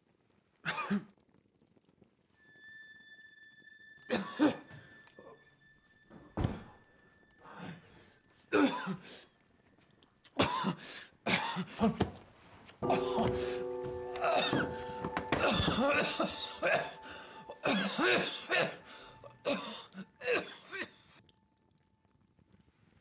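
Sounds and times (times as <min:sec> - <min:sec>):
music: 0:02.3 - 0:10.6, 0:12.8 - 0:22.3
man coughing and gagging: 0:08.5 - 0:09.2, 0:10.3 - 0:12.0, 0:15.3 - 0:21.0
thin high tone: 0:12.8 - 0:19.4.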